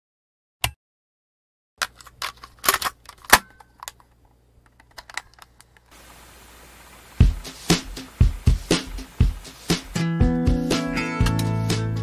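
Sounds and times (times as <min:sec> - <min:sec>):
plastic clicks and clatter: 0:01.8 - 0:05.9.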